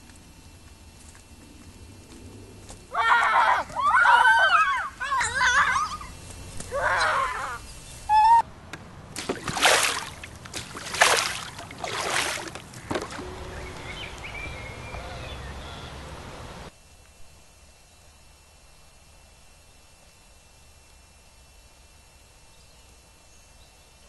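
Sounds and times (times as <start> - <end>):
girls shrieking: 2.9 - 8.4
water sloshing and dripping: 9.1 - 14.2
loud splashes into water: 9.2 - 13.5.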